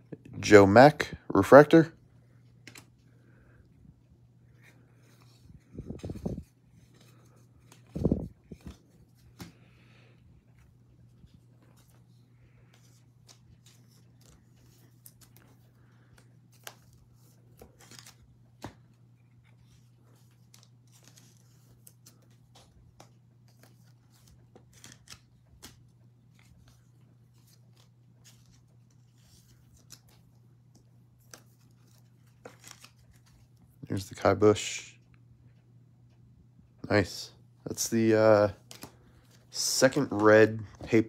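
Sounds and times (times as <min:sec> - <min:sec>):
cards clicking and rustling: 0:02.4 - 0:03.2, 0:04.5 - 0:09.7, 0:11.0 - 0:33.6, 0:37.8 - 0:41.0.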